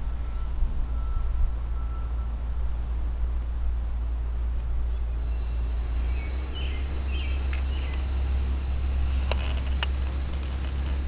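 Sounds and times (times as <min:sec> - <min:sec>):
faint high whine: 0:00.0 - 0:11.0
grinder motor hum: 0:05.5 - 0:11.0.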